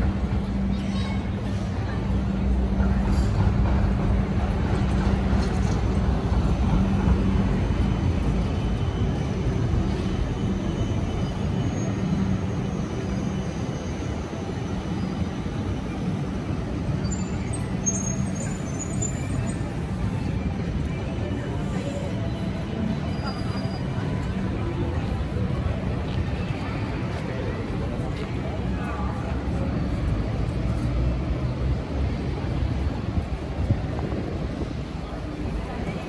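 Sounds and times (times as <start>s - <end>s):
traffic engine hum: 0.0s - 36.0s.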